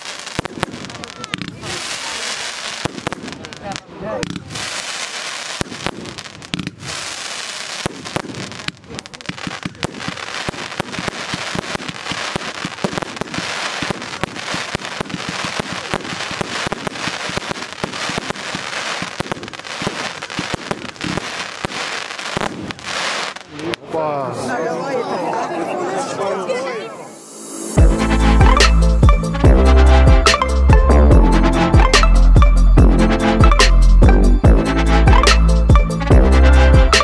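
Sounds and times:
fireworks firing with dense crackle: 0.0s - 23.9s.

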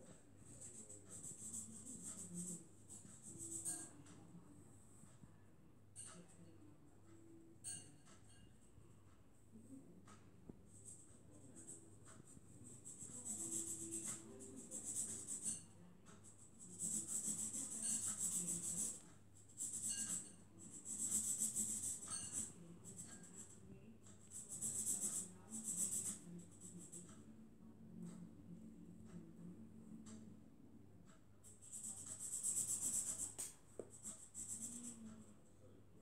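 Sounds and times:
marker scratching on paper: 0.1s - 3.9s, 10.7s - 23.6s, 24.2s - 27.1s, 31.5s - 35.2s.

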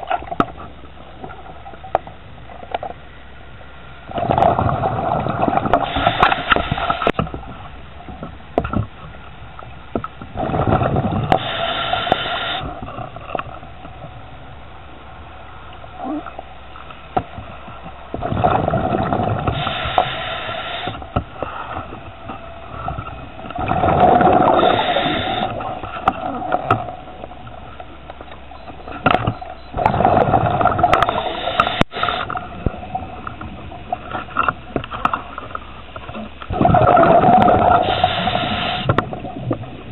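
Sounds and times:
exhaled bubbles rushing underwater: 4.1s - 7.7s, 10.3s - 14.5s, 17.4s - 39.9s.

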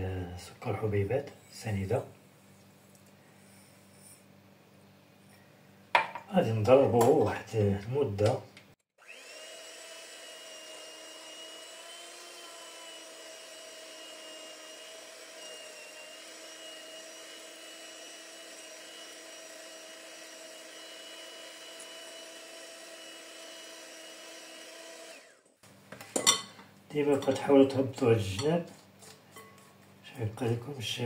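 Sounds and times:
electric mixer whisking: 9.0s - 25.5s.

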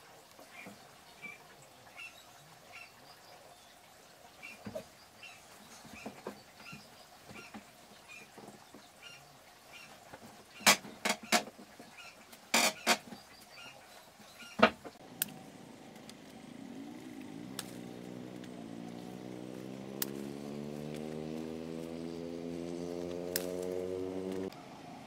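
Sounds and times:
vehicle engine running: 14.9s - 25.0s.

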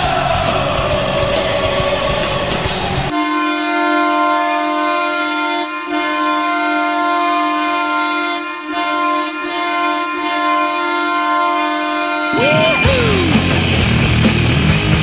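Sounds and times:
goal horn blast: 3.1s - 13.6s.

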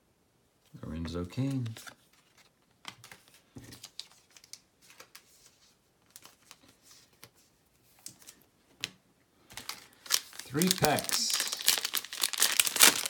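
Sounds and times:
trading cards clicking and rustling: 1.3s - 5.3s, 9.5s - 13.0s.

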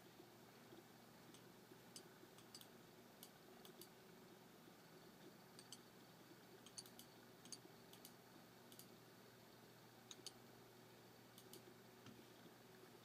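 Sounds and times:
faint sharp clicks: 6.6s - 8.9s, 11.3s - 12.2s.

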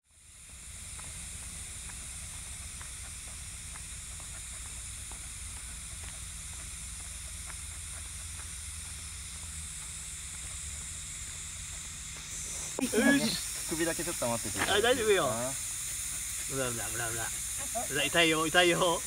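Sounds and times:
insect chorus drone: 0.0s - 19.0s
faint ticks: 0.4s - 11.0s.

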